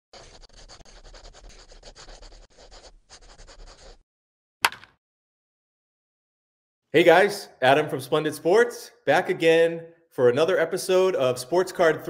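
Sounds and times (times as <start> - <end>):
fast rubbing strokes: 0.1 - 4.0.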